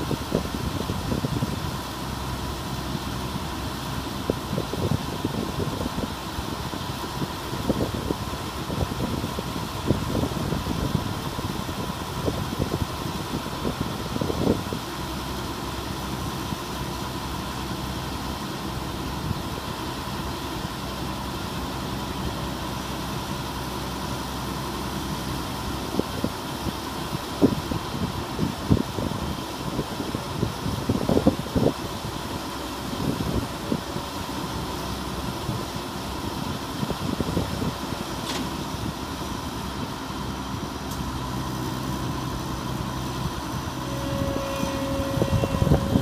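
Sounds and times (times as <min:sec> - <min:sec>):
wind buffeting microphone: 0:00.0 - 0:03.4, 0:04.1 - 0:15.3, 0:25.9 - 0:34.4, 0:35.0 - 0:46.0
auger high whine: 0:00.0 - 0:46.0
combine harvester droning: 0:00.0 - 0:46.0.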